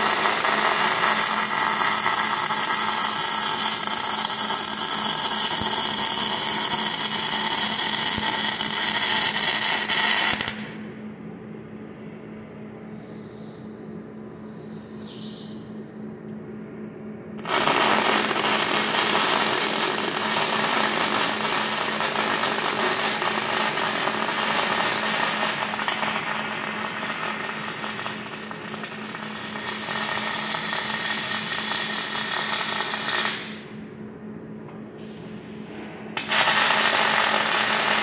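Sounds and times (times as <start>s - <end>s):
welding arc noise: 0.0s - 10.8s, 17.4s - 33.7s, 36.2s - 38.0s
steady low hum: 0.0s - 38.0s.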